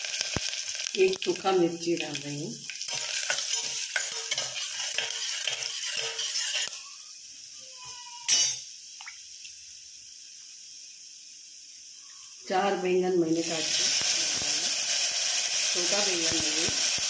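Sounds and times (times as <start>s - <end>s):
food sizzling and crackling in oil: 0.0s - 17.0s
spatula stirring: 2.7s - 6.9s.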